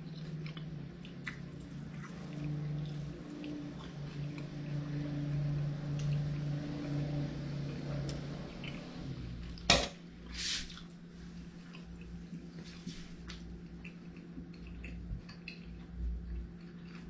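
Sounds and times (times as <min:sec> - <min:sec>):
person chewing: 0:00.0 - 0:04.6, 0:10.7 - 0:17.0
low hum: 0:00.0 - 0:17.0.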